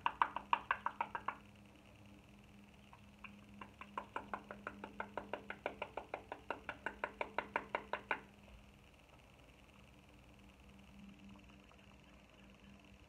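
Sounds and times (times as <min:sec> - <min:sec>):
rapid tapping on powder container: 0:00.0 - 0:01.5, 0:03.3 - 0:08.4.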